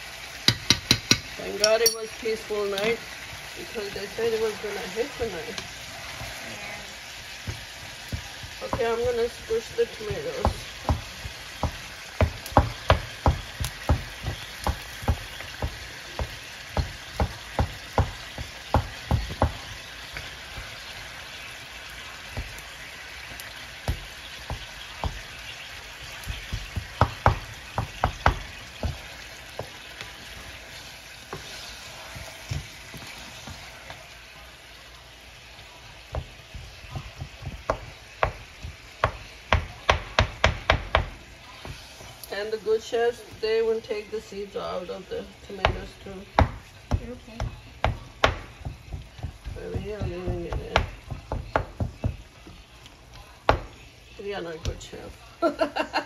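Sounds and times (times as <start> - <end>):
chicken and tomatoes sizzling in pan: 0.0 - 56.0
wooden spatula knocking on pan: 0.4 - 2.0, 7.3 - 20.8, 23.8 - 30.2, 31.3 - 33.7, 36.0 - 41.8, 45.6 - 52.6, 53.4 - 53.8.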